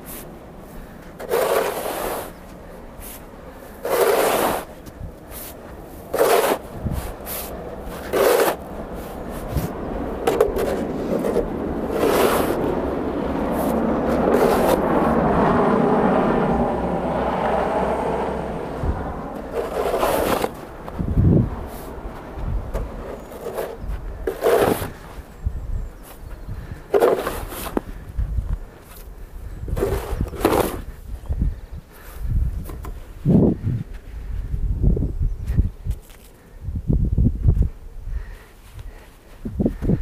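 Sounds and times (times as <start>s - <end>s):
snow shovel scraping snow: 0.0s - 9.7s, 10.3s - 12.8s, 13.5s - 15.2s, 19.4s - 21.0s, 21.7s - 22.0s, 22.8s - 25.2s, 26.9s - 27.8s, 29.7s - 31.0s.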